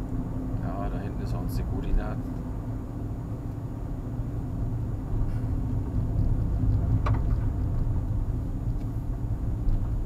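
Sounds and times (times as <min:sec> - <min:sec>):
car engine and road rumble: 0:00.0 - 0:10.0.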